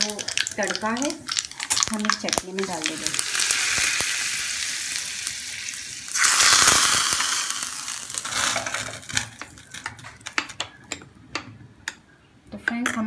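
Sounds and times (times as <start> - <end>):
hot oil sizzling: 0.0 - 10.4.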